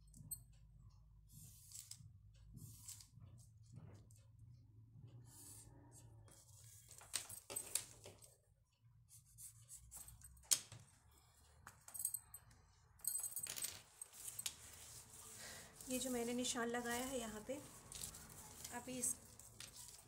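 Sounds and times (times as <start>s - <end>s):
paper rustling: 13.6s - 20.0s.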